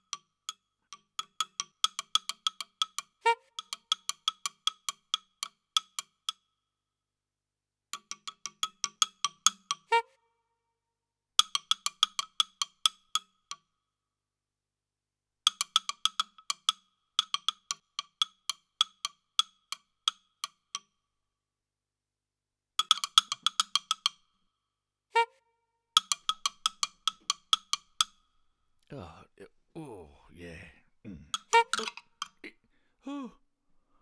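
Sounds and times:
hollow wood-block knocks: 26.0 - 28.3, 31.3 - 32.4.

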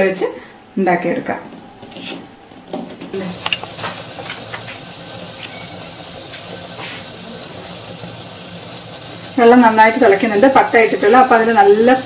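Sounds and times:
water boiling hard: 3.0 - 12.0.

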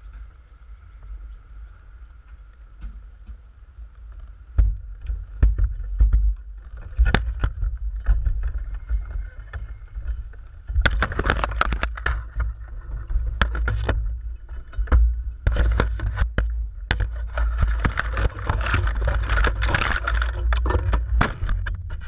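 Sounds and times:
rustling leaves: 0.0 - 22.0
wind rumble on microphone: 0.0 - 22.0
pole scraping branch: 6.6 - 22.0.

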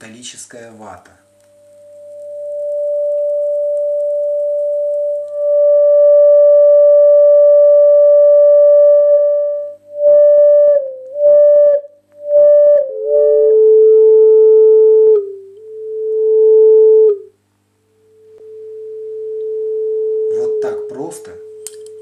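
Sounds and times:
high-pitched pure tone: 1.1 - 17.4, 18.0 - 22.0.

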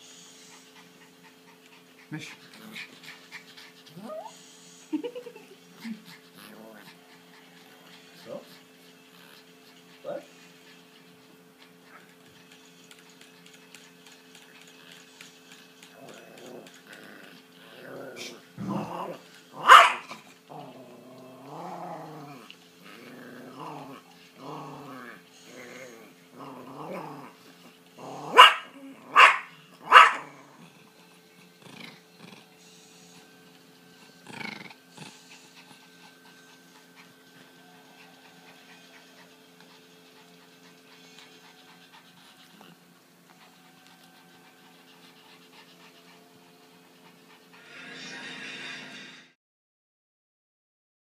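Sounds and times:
small dog growling: 0.7 - 4.4, 5.0 - 8.5, 9.1 - 10.3, 15.9 - 32.6, 34.0 - 42.9
dog barking: 19.6 - 20.1, 28.3 - 30.3.

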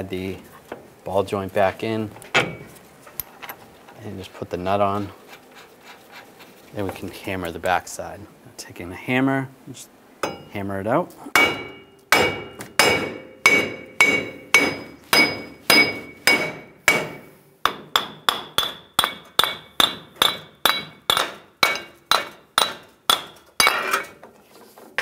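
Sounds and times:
sledgehammer striking metal hub: 10.2 - 10.6, 11.4 - 24.2.

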